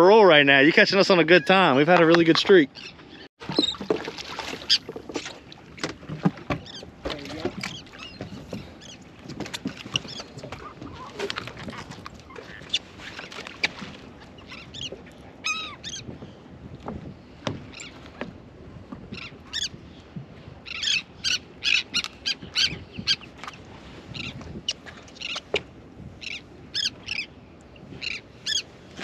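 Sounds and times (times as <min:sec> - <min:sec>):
seabirds calling: 0:00.0 - 0:29.0.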